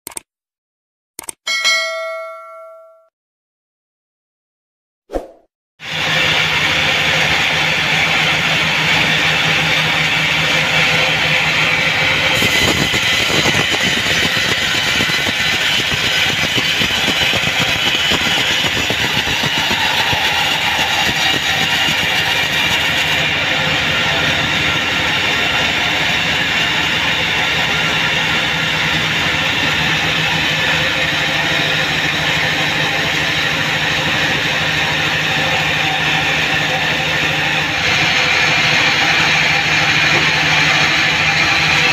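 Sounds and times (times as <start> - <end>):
band sawmill hum: 5.9 - 41.9
saw blade hissing through log: 12.4 - 14.6.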